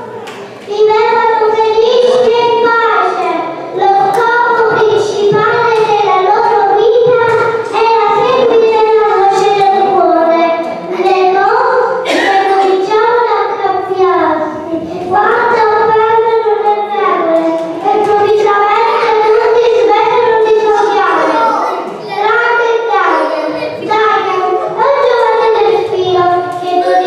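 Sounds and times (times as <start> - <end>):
child singing into a microphone: 0.0 - 27.0.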